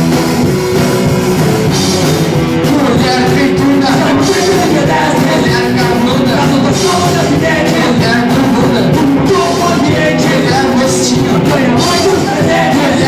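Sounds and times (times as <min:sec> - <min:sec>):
drum kit: 0:00.0 - 0:13.0
electric guitars: 0:00.0 - 0:13.0
man singing: 0:02.6 - 0:13.0.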